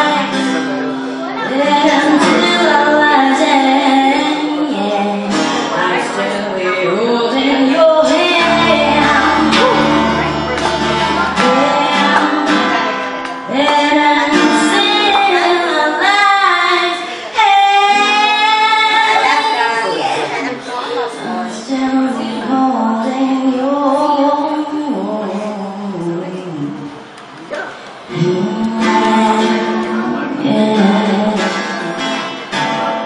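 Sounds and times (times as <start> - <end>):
acoustic guitar strumming: 0.0 - 19.6, 28.1 - 33.0
woman singing: 1.4 - 20.3, 21.1 - 27.0, 28.1 - 32.4.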